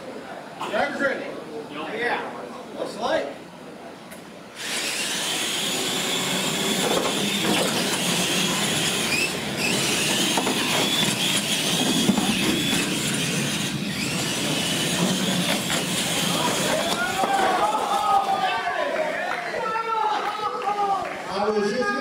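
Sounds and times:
toy truck motors whining: 0:04.6 - 0:18.0
tyres on concrete floor: 0:04.6 - 0:18.5.

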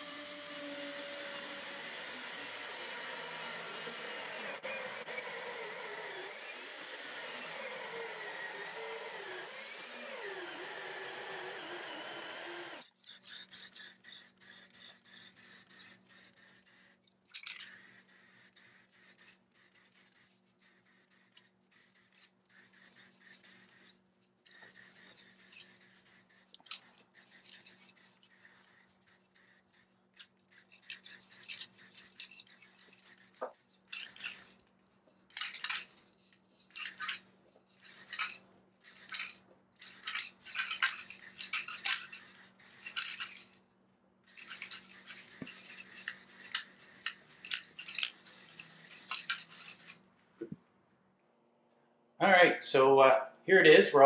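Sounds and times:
aerosol spray hissing bursts: 0:12.8 - 0:17.0, 0:17.6 - 0:23.9, 0:24.5 - 0:29.9, 0:30.7 - 0:34.5, 0:40.0 - 0:43.2, 0:44.3 - 0:50.0.

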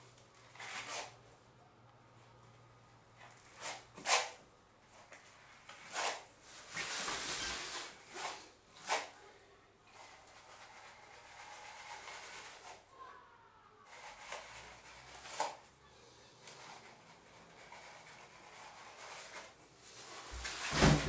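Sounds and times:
comb scraping wet wall texture: 0:09.9 - 0:12.9, 0:16.4 - 0:21.0.

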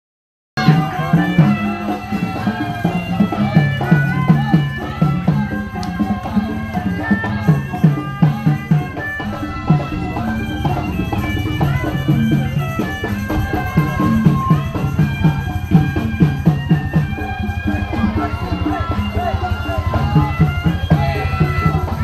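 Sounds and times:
repeating drum hits: 0:07.4 - 0:22.0
melody: 0:08.0 - 0:21.4.

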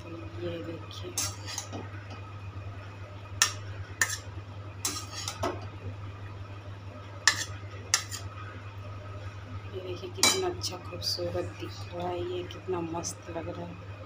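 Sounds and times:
steady low hum: 0:00.0 - 0:14.0
metal spatula scraping: 0:01.1 - 0:01.8, 0:03.4 - 0:05.4, 0:07.2 - 0:08.3.

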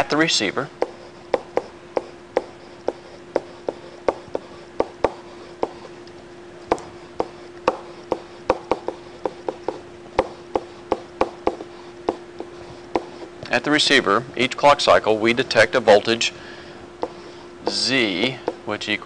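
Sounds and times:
faint steady hum: 0:00.0 - 0:19.0
stylus tapping on tablet: 0:00.8 - 0:05.9, 0:06.7 - 0:13.3, 0:17.0 - 0:17.8.

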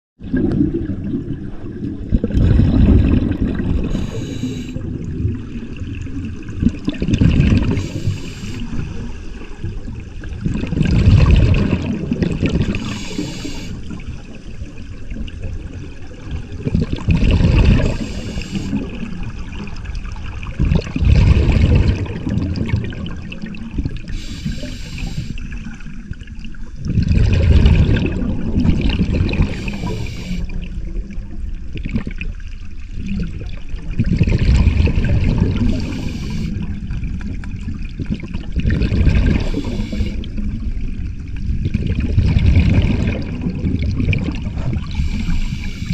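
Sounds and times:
exhaled bubbles rushing: 0:00.2 - 0:45.9
regulator inhale hiss: 0:03.8 - 0:04.8, 0:07.7 - 0:08.8, 0:12.6 - 0:13.9, 0:17.8 - 0:18.8, 0:24.1 - 0:25.5, 0:29.5 - 0:30.5, 0:35.6 - 0:36.7, 0:39.4 - 0:40.3, 0:44.8 - 0:45.9.

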